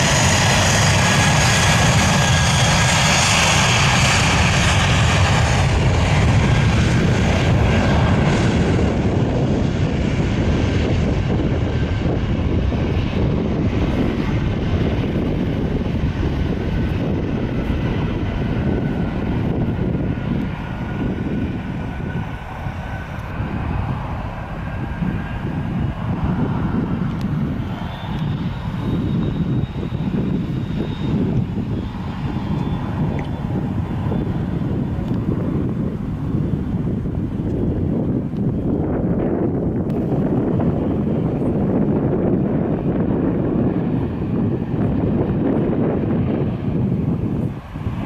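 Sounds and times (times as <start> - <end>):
jet engines roaring: 0.0 - 48.0.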